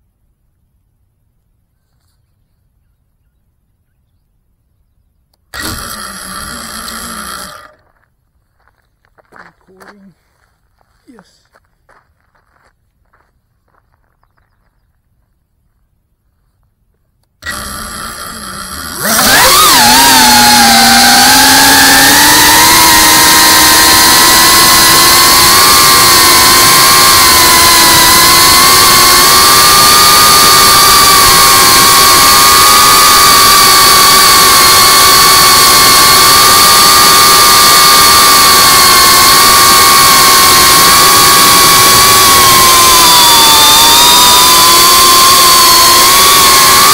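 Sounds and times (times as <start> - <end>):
drone motors high whine: 5.5 - 7.9, 17.4 - 46.9.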